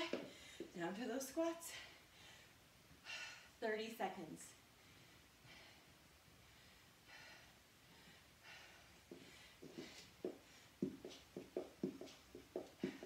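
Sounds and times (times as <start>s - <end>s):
person breathing hard: 4.8s - 10.8s
feet thumping on floor: 9.1s - 13.0s.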